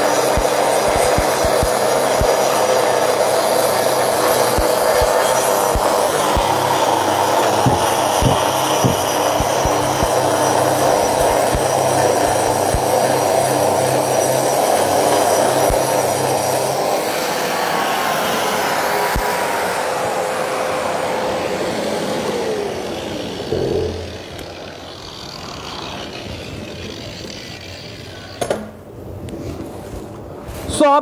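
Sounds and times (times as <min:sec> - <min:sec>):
vacuum cleaner running: 0:00.0 - 0:28.4
concrete grinder on wall: 0:00.0 - 0:28.9.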